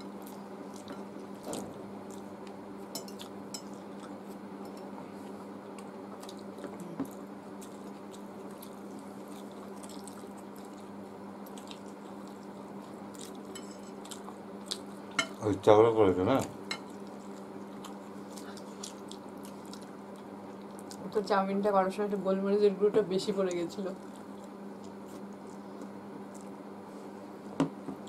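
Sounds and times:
steady low hum: 0.0 - 28.0
wet chewing: 5.8 - 15.0, 16.8 - 21.1.

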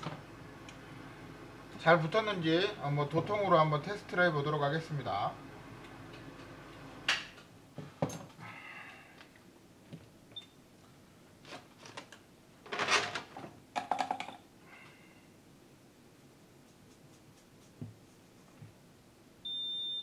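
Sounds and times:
tiny high beep: 19.4 - 20.0.

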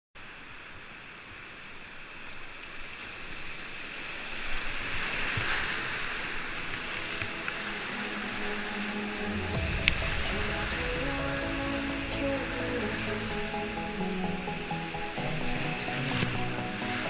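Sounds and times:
whitewater rapids rushing: 3.6 - 17.0
music: 6.8 - 17.0.

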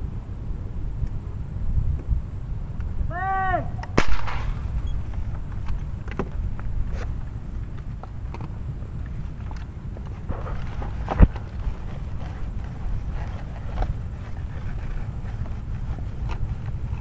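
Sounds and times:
wind rumbling on microphone: 0.0 - 17.0
air gun firing crack: 3.8 - 4.8.

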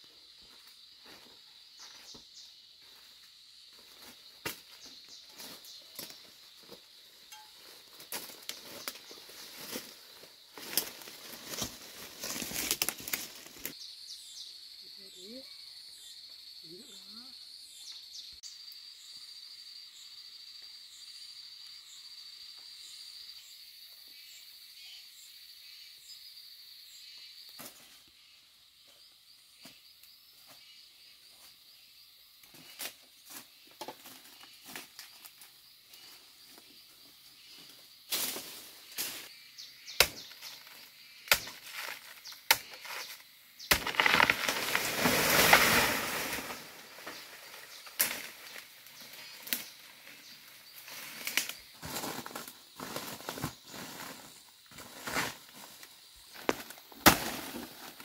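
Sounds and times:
high insect drone: 0.0 - 58.0
footsteps crunching on dry leaves: 4.1 - 13.8, 43.8 - 56.9
brushing through undergrowth: 7.8 - 13.7, 43.8 - 58.0
loud leaf rustling: 8.4 - 13.7, 43.7 - 55.6
twigs snapping: 10.6 - 13.7, 43.7 - 45.7.

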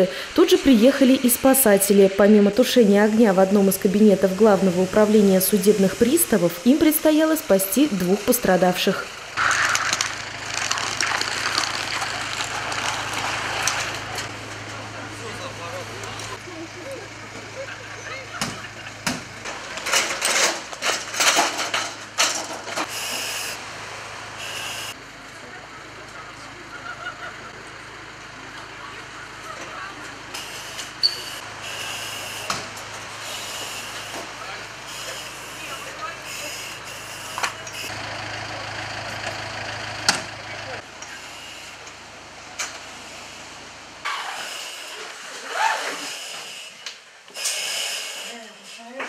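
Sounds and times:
fire engine idling: 0.0 - 44.1
compressed air hissing: 45.8 - 48.8.

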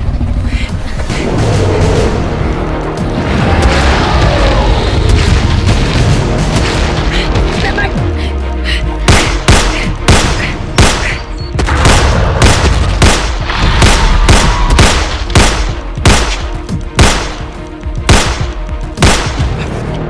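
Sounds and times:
dramatic music score: 0.0 - 20.0
gunshots: 9.0 - 19.6.

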